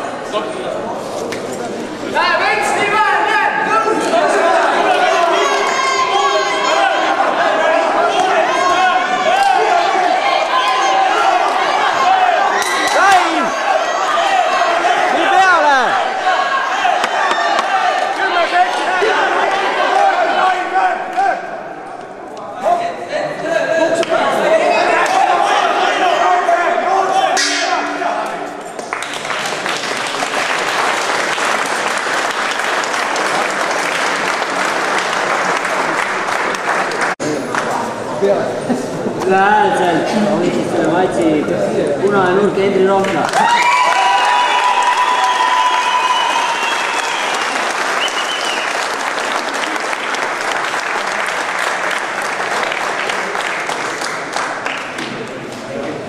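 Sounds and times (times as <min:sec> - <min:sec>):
crowd applauding: 0:04.4 - 0:20.5, 0:28.6 - 0:37.7, 0:43.0 - 0:55.5.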